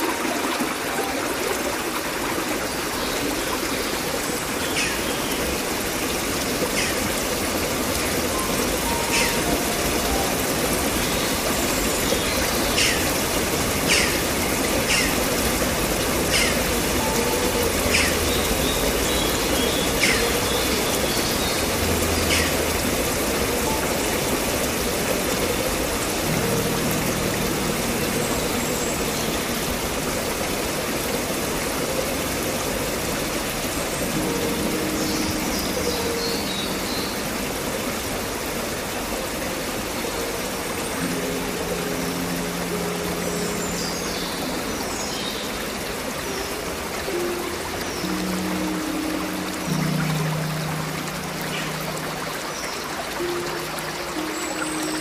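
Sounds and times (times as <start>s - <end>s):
flowing water: 0.0s - 55.0s.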